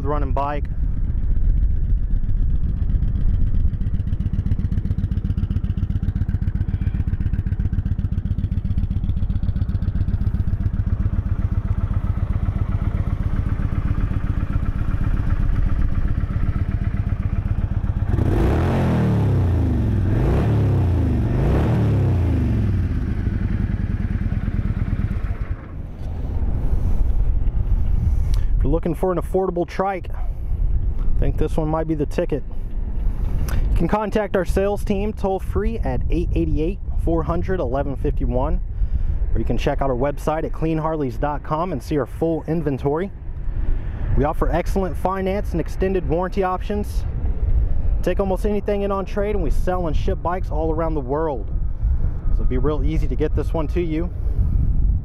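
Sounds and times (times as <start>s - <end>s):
motorcycle engine idling and revving: 0.0s - 55.0s.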